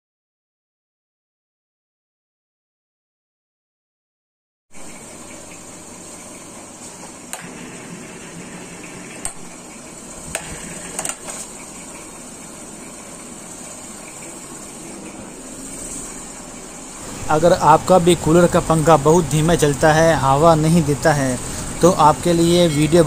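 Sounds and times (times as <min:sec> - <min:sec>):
air cooler fan whirring: 0:04.8 - 0:23.0.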